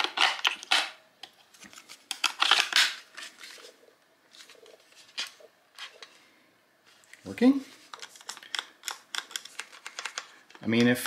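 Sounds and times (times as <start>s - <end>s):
batteries clicking into plastic tray: 8.0s - 10.6s.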